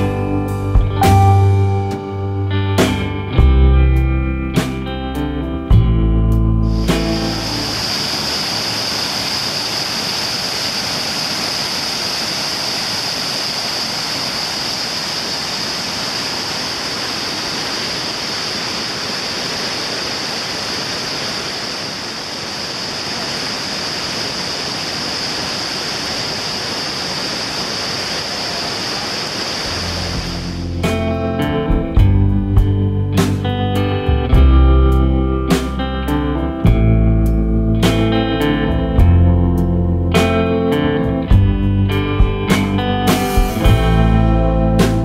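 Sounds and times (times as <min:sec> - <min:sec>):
water rushing with high hiss: 0:06.6 - 0:31.2.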